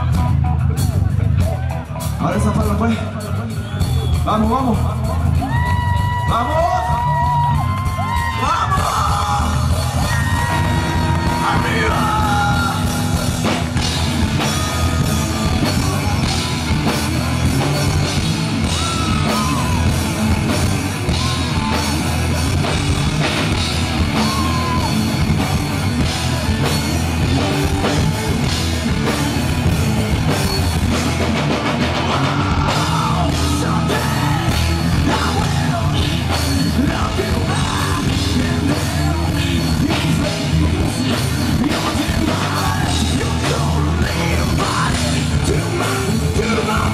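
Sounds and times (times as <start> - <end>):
drum kit: 0.0 - 46.9
electric bass: 0.0 - 46.9
person singing: 5.0 - 13.6, 32.0 - 46.9.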